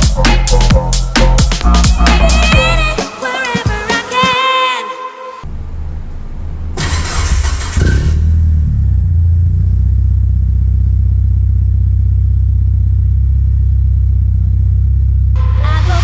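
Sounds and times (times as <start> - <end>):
car engine idling: 5.4 - 16.0.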